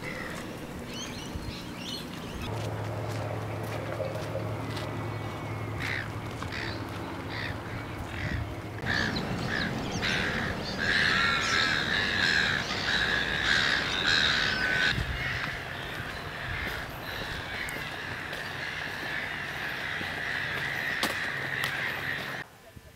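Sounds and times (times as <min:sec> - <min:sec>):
birds calling harshly: 0:00.0 - 0:02.5, 0:03.7 - 0:22.4
chorus of many birds: 0:00.0 - 0:22.4.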